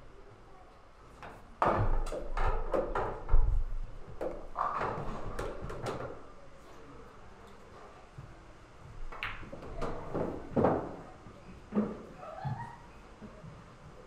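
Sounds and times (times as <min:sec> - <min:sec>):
billiard balls clacking: 0:04.1 - 0:06.3, 0:09.0 - 0:11.0.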